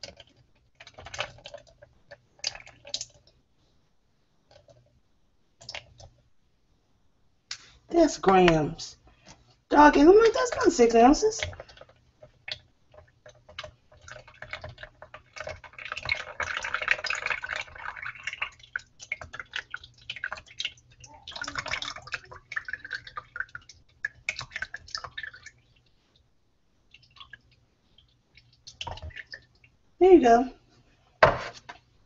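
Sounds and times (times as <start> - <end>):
liquid pouring into plastic container: 0.0 - 3.4, 5.6 - 6.1, 10.2 - 25.8, 26.9 - 29.8.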